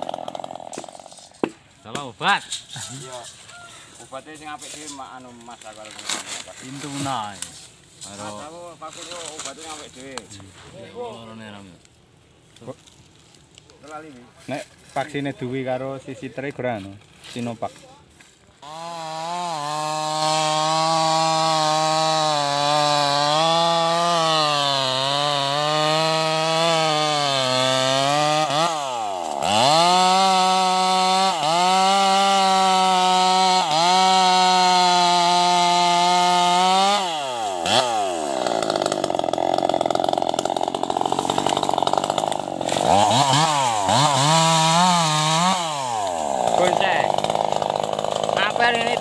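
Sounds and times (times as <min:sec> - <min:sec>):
chainsaw cutting log: 0:00.0 - 0:02.1, 0:04.3 - 0:10.3, 0:18.6 - 0:49.0.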